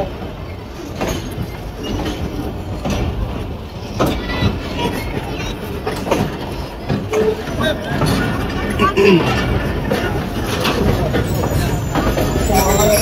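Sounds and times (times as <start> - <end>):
passenger train rumbling: 0.0 - 13.0
faint voices: 3.5 - 13.0.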